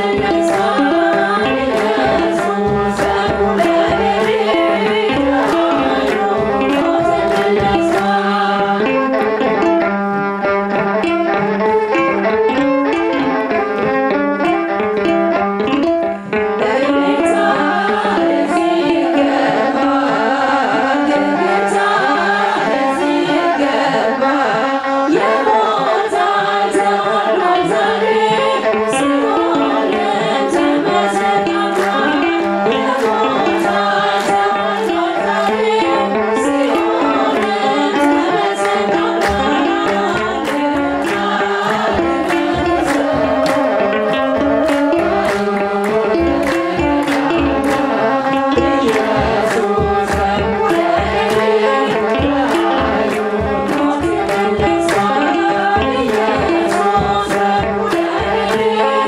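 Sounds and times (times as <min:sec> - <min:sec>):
drum beat: 0:00.0 - 0:08.6, 0:38.2 - 0:59.0
women singing a hymn: 0:00.0 - 0:09.7, 0:16.5 - 0:59.0
hand clapping: 0:00.0 - 0:09.9, 0:27.5 - 0:59.0.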